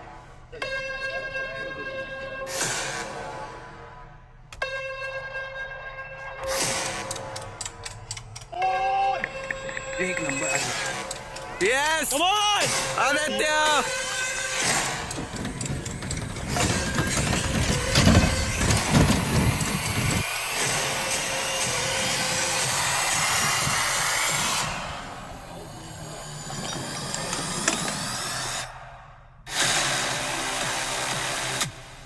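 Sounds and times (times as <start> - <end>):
electric race cars whirring: 13.9 - 28.8.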